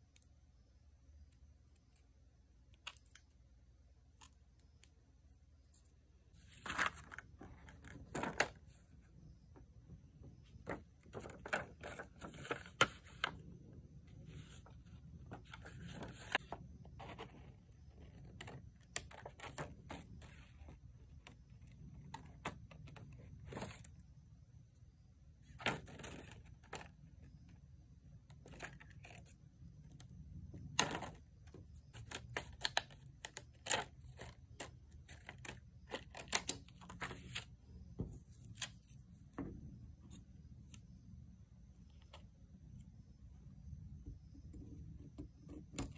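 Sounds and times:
paper rustling: 0:06.4 - 0:08.8, 0:10.6 - 0:13.4, 0:14.2 - 0:17.3.

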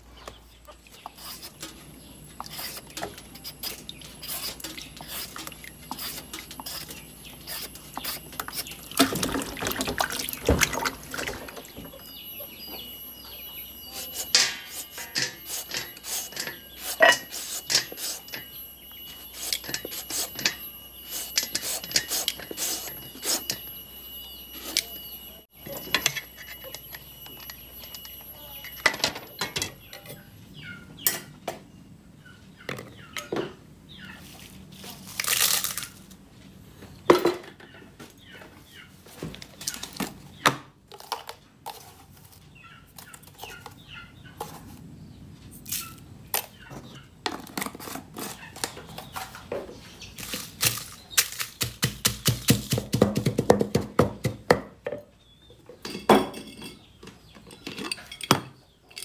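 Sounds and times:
shredder scraping papaya: 0:01.0 - 0:09.7, 0:13.8 - 0:20.4, 0:21.0 - 0:23.6
mortar and pestle knocks: 0:51.6 - 0:54.7.

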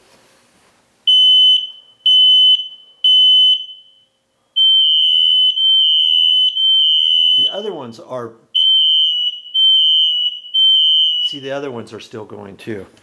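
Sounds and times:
smoke alarm beeping: 0:01.1 - 0:07.7, 0:08.6 - 0:11.7.

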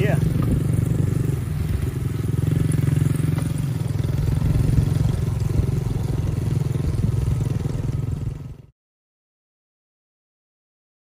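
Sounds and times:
dirt bike engine running: 0:00.0 - 0:08.7.

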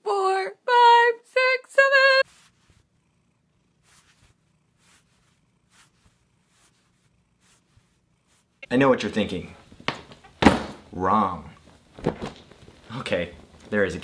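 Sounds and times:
soft breaths: 0:02.2 - 0:08.7
cat purring: 0:02.3 - 0:08.7.

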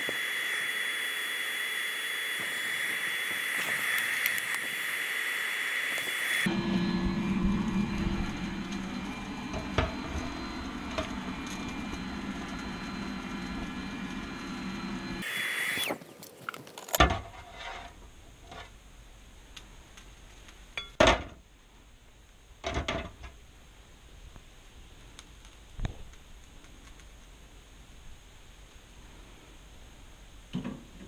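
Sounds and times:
blower motor humming: 0:00.0 - 0:17.0.

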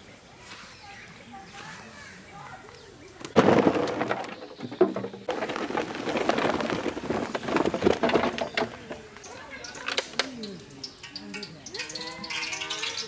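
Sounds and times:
gourd cubes clattering in metal bowl: 0:03.3 - 0:10.2.

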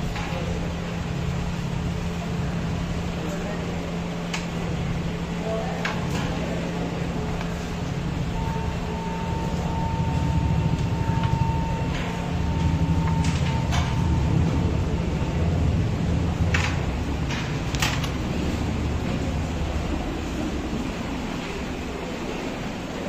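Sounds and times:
low machine hum: 0:00.0 - 0:23.0
thin steady tone: 0:06.7 - 0:15.9.

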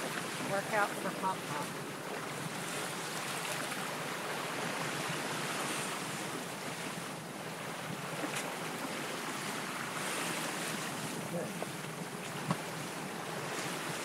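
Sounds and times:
water rushing along hull: 0:00.0 - 0:14.0.

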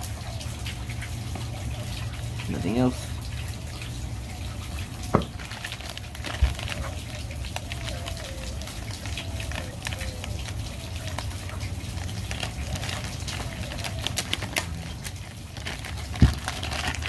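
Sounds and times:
plastic bag crinkling: 0:05.1 - 0:17.0.

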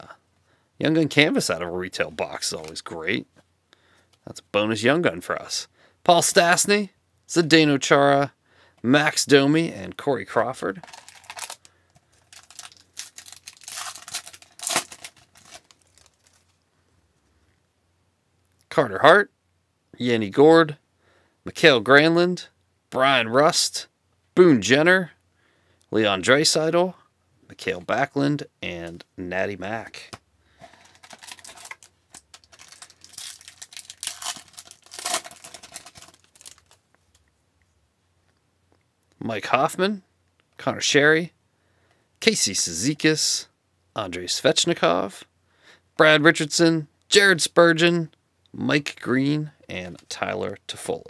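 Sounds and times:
wrapper crinkling and tearing: 0:10.8 - 0:16.6, 0:30.6 - 0:36.8.

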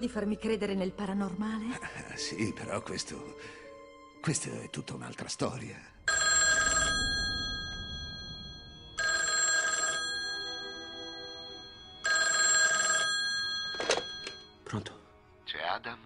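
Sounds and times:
telephone bell ringing: 0:06.1 - 0:14.6.

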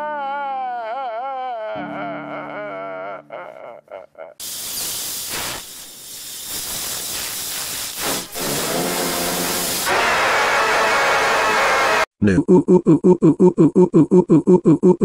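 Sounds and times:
person hissing: 0:03.4 - 0:09.9.

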